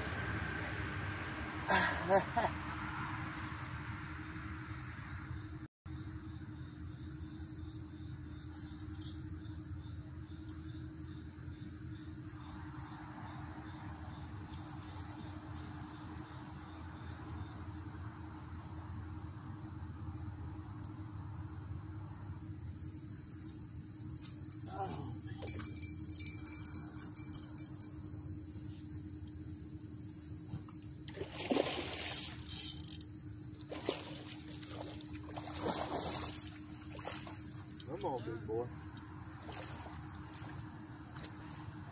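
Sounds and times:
crickets trilling: 0:00.0 - 0:41.9
water splashing and sloshing: 0:30.4 - 0:38.2, 0:38.8 - 0:41.9.

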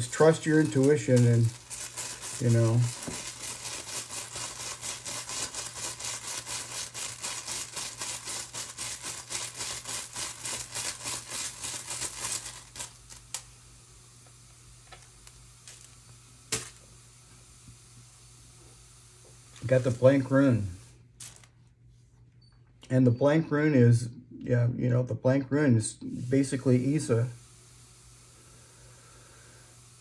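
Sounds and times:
tiles rattling in cloth pouch: 0:00.0 - 0:13.2.

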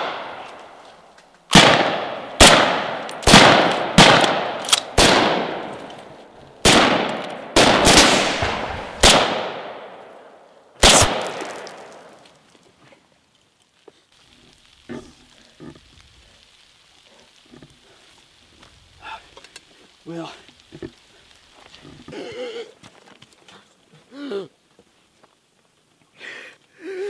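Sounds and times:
rifle shots echoing: 0:00.0 - 0:00.6, 0:01.5 - 0:05.9, 0:06.6 - 0:12.2.

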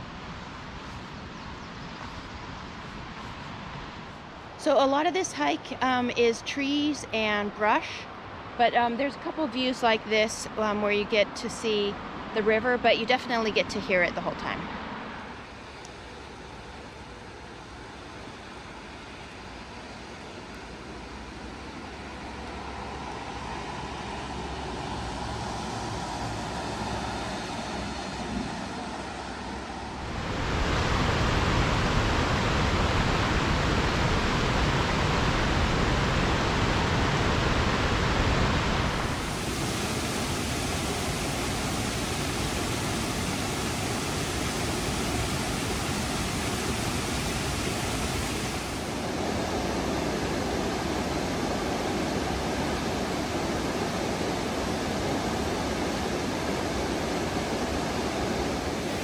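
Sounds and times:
river water rushing over rocks: 0:29.2 - 0:59.0.

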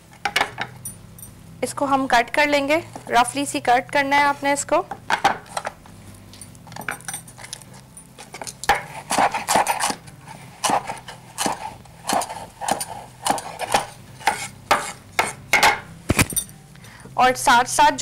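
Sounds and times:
knife chopping on wooden board: 0:08.7 - 0:10.0, 0:10.6 - 0:15.9.

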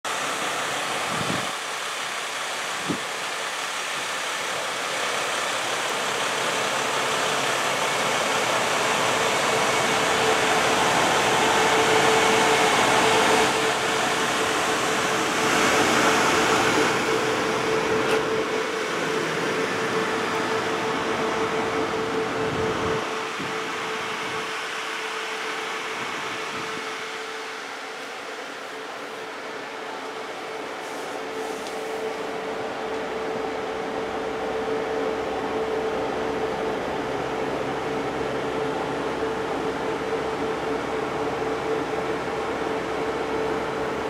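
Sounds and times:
mechanical whir and air rush: 0:07.2 - 0:24.8, 0:29.4 - 0:36.4.

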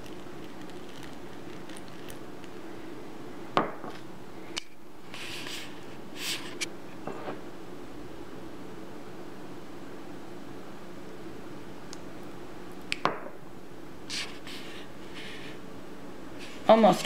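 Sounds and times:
steady low hum: 0:00.0 - 0:17.0
brief hissing rustles: 0:05.1 - 0:06.7, 0:14.1 - 0:15.3.

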